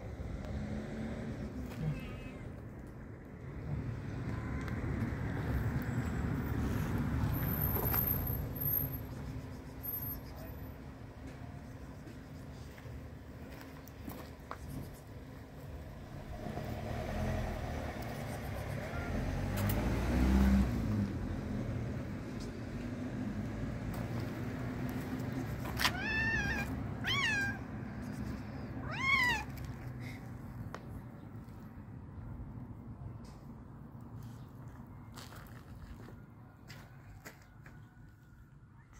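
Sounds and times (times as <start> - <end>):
cats meowing: 1.8 - 2.6, 25.7 - 27.7, 28.8 - 29.7.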